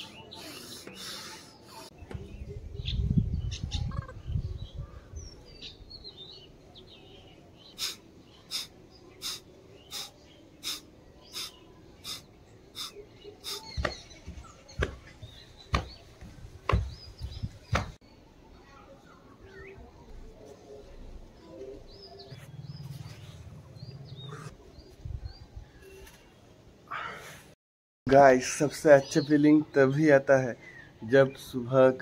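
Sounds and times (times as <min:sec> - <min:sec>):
sharp exhalations through nose: 0:00.0 - 0:01.9, 0:07.7 - 0:13.8.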